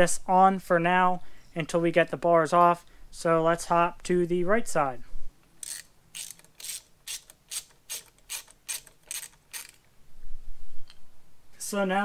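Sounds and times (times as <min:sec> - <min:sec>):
ratcheting driver clicking: 0:05.6 - 0:09.9.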